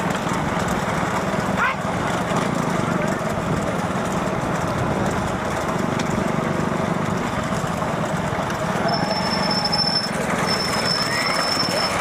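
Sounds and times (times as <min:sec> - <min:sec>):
cart noise: 0:00.0 - 0:12.0
motorcycle engines running: 0:00.0 - 0:12.0
crowd noise: 0:08.6 - 0:12.0.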